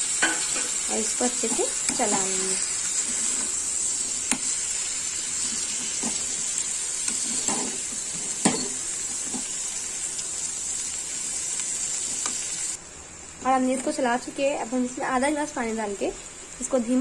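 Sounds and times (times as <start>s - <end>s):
vegetables sizzling in oil: 0.0s - 17.0s
spatula scraping and knocking pan: 7.0s - 9.5s.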